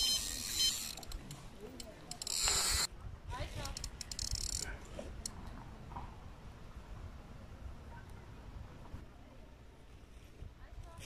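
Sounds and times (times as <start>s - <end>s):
fishing reel ticking and whirring: 0.0s - 1.3s, 2.1s - 2.9s, 3.7s - 4.6s.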